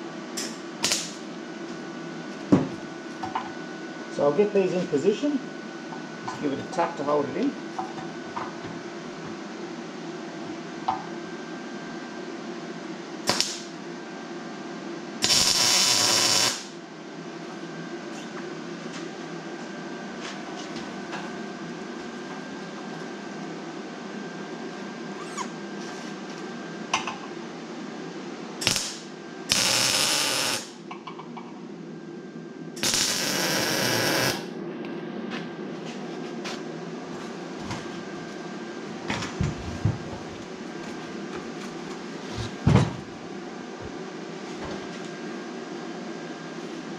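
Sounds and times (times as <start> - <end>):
welding arc hissing and crackling: 0.4 - 1.2, 13.2 - 13.8, 15.2 - 16.8, 28.6 - 30.8, 32.8 - 34.5.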